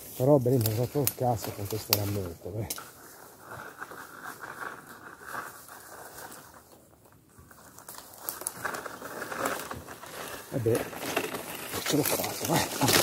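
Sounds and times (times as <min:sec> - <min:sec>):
branches cracking: 0:00.0 - 0:13.0
dry leaves and branches rustling: 0:00.0 - 0:13.0.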